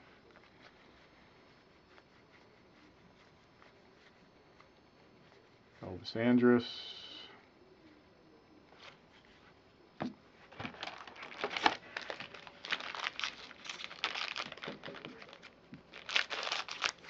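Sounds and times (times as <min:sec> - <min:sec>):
wrapper crinkling and tearing: 0:10.5 - 0:17.0.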